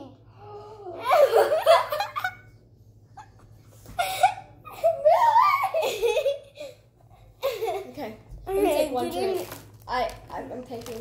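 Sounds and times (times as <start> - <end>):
girls laughing and giggling: 0.9 - 8.1.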